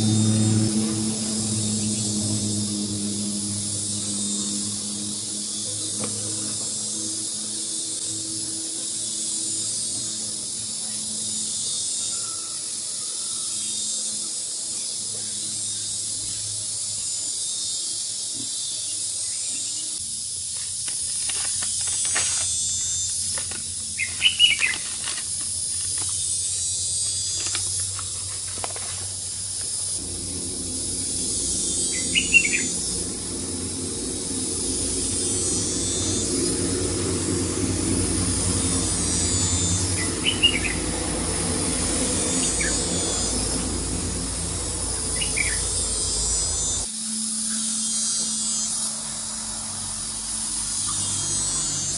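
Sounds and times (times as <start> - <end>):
low rumble: 0.0 - 11.3, 29.1 - 46.9
high-pitched insect chorus: 0.0 - 51.9
bird chirps: 24.0 - 24.8, 30.8 - 36.8, 39.2 - 40.8, 45.0 - 46.8.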